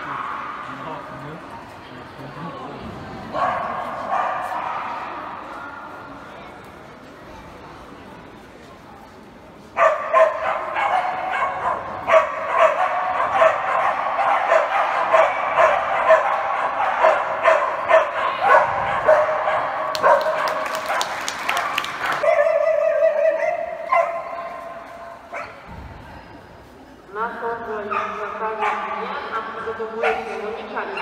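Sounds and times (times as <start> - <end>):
dog barking in high yips: 9.8 - 25.6.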